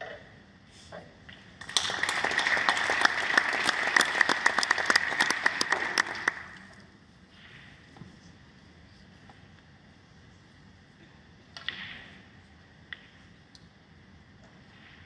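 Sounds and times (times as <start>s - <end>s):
audience applauding: 1.6s - 6.8s.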